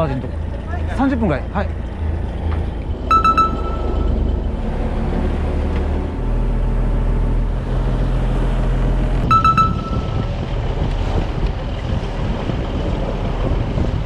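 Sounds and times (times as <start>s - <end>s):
boat engine droning: 0.0s - 13.6s
rapid electronic beeps: 3.1s - 4.3s, 9.3s - 10.4s.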